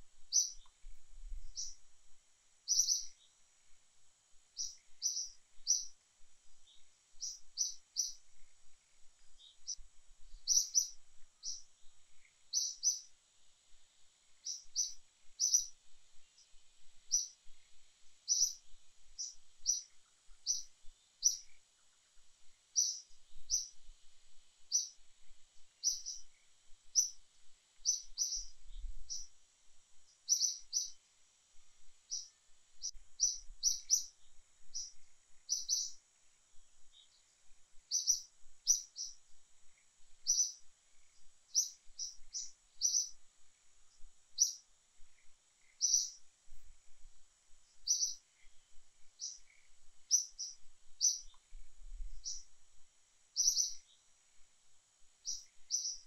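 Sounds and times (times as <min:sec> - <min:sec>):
bird chirping: 0:00.2 - 0:01.9, 0:02.6 - 0:03.4, 0:04.5 - 0:13.1, 0:14.3 - 0:23.9, 0:24.6 - 0:25.0, 0:25.6 - 0:27.2, 0:27.8 - 0:29.4, 0:30.0 - 0:31.0, 0:32.0 - 0:36.0, 0:36.8 - 0:43.2, 0:43.9 - 0:46.3, 0:47.7 - 0:52.6, 0:53.3 - 0:54.1, 0:55.2 - 0:56.0.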